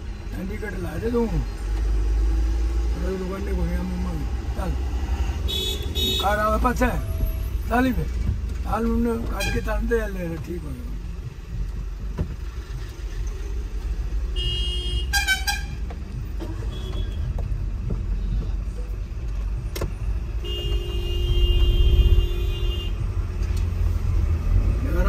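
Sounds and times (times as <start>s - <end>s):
car engine and road noise: 0.0s - 25.0s
vehicle horns honking: 5.5s - 6.6s, 14.4s - 15.8s, 16.4s - 17.3s, 20.4s - 23.0s.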